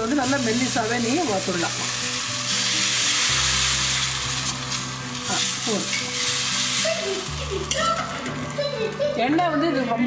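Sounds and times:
batter sizzling on hot pan: 0.0 - 9.7.

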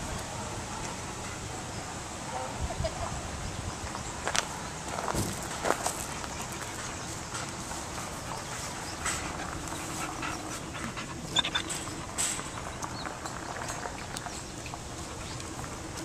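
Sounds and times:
dogs panting: 5.5 - 15.5.

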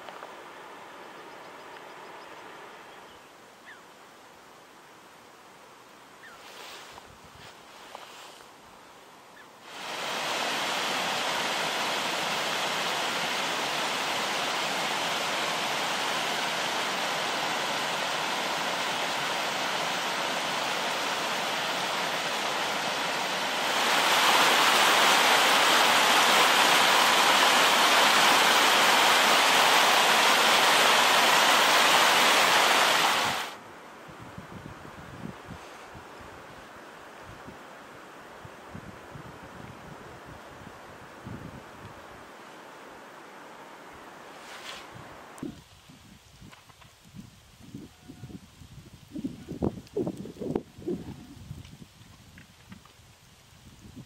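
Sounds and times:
water rushing: 9.6 - 33.6.

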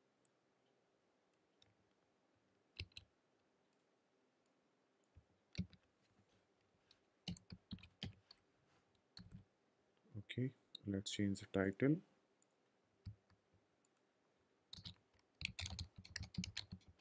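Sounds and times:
computer keyboard keystrokes: 2.8 - 3.0, 7.3 - 8.2, 14.7 - 17.0.

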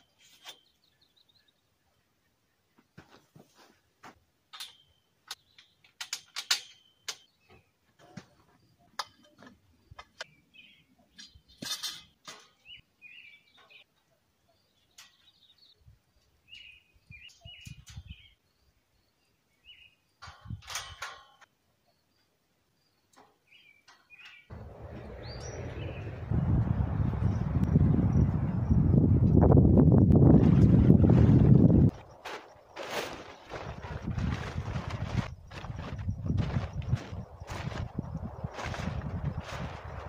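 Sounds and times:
birds chirping: 8.6 - 20.2, 21.8 - 28.9.

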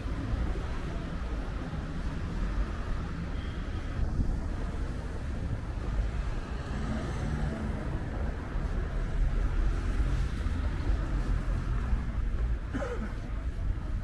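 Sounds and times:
low rumble of traffic: 0.0 - 14.0
wind buffeting microphone: 3.9 - 6.3.

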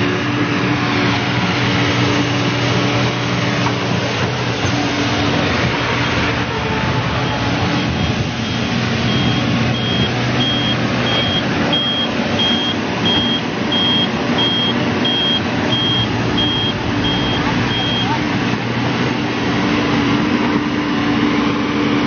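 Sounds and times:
diesel engine running: 0.0 - 22.0
excavator travel alarm beeping: 7.1 - 18.3.

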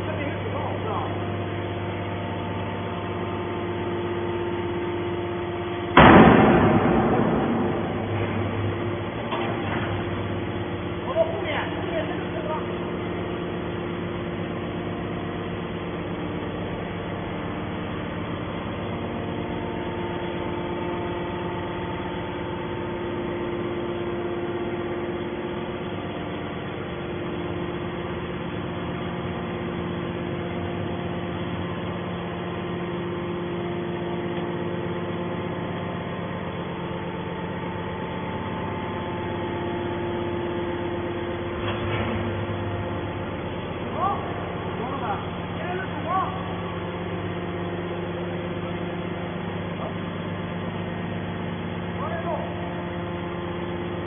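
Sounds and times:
hydraulic machine humming: 0.0 - 54.0.

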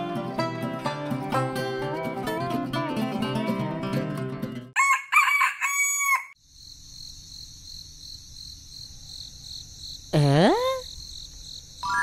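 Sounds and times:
rooster crowing: 4.8 - 6.4.

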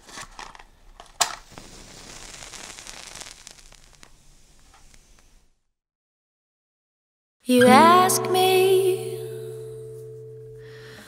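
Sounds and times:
sharp crack: 0.0 - 5.5
fire crackling hiss: 0.7 - 5.7.

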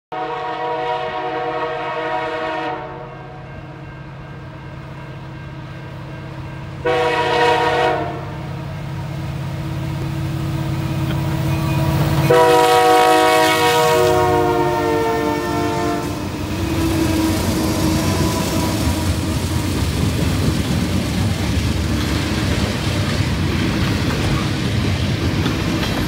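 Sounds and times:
locomotive air horn blasts: 0.1 - 3.8, 6.8 - 8.6, 11.3 - 19.5
diesel engines humming: 5.9 - 26.0.

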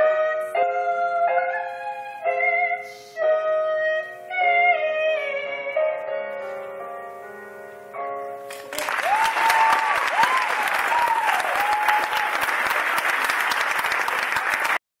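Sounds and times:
audience applauding: 8.5 - 14.8
whooping cheers: 8.8 - 13.2.

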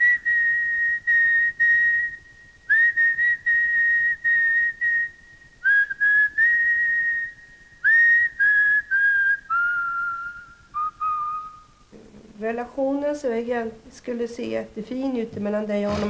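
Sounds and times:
person whistling a tune: 0.0 - 11.8.

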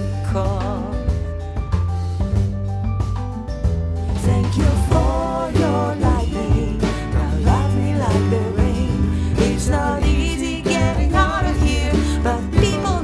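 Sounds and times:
woman singing pop song: 0.0 - 1.4, 4.1 - 13.0
acoustic guitar: 0.0 - 13.0
drum kit: 0.0 - 13.0
keyboard: 0.0 - 13.0
upright bass: 0.0 - 13.0.

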